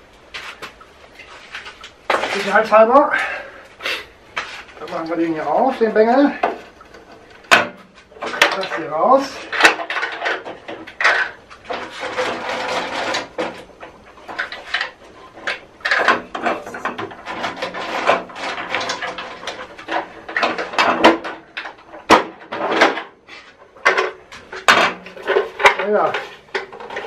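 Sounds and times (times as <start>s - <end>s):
knocks rattles and scraping: 0.0s - 3.6s, 4.4s - 27.0s.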